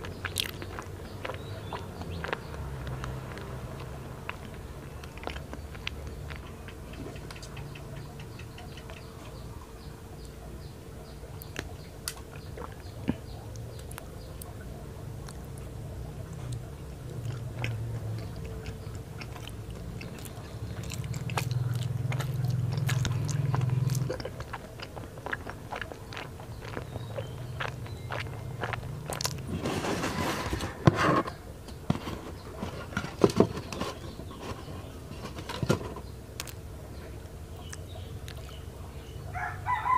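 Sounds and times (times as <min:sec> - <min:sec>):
chewing soft food: 0:00.0 - 0:39.9
wet mouth clicks and smacks: 0:37.6 - 0:38.6.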